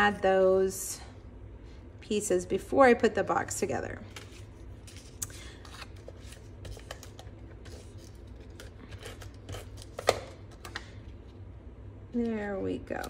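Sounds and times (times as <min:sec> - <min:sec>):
steady low hum: 0:00.0 - 0:13.0
paper rustling: 0:04.1 - 0:10.1.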